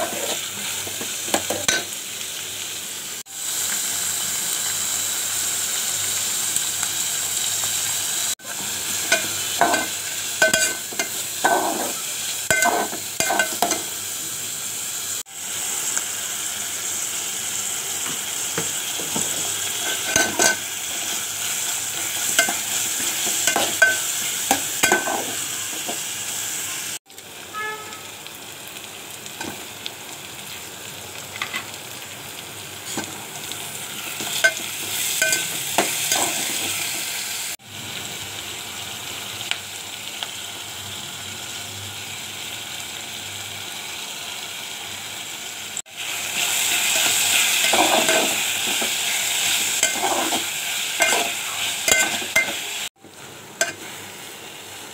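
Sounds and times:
metal spatula scraping pot: 0.0s - 0.5s, 9.0s - 13.9s, 19.1s - 20.6s, 34.2s - 37.0s, 46.9s - 52.6s
onions sizzling in oil: 0.0s - 54.9s.

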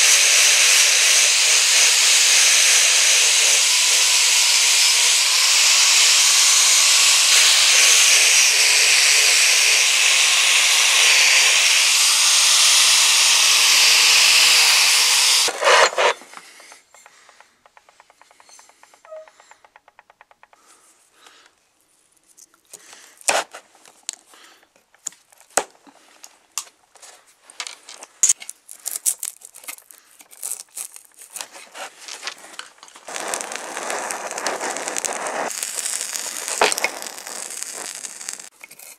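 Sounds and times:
angle grinder wire brush on metal: 0.0s - 19.8s, 33.1s - 38.9s
clicks and knocks of handled parts: 22.2s - 33.1s.

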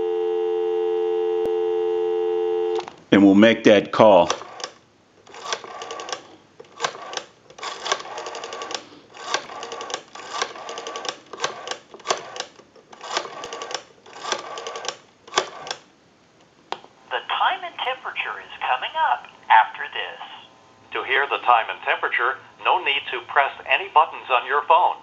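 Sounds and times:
rotary dial clicking: 4.3s - 15.9s.

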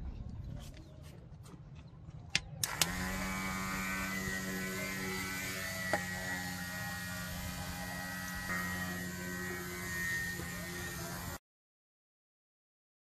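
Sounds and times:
small motor spinning propeller: 2.6s - 11.4s.

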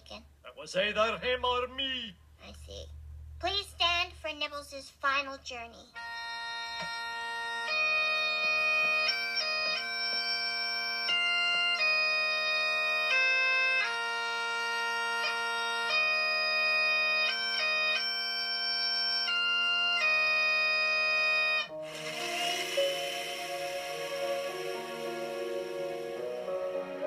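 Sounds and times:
bagpipes playing slow tune: 6.0s - 27.0s.

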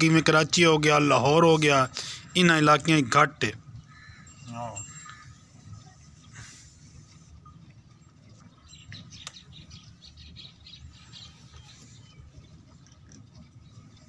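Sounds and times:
bird chirping: 8.4s - 14.0s.

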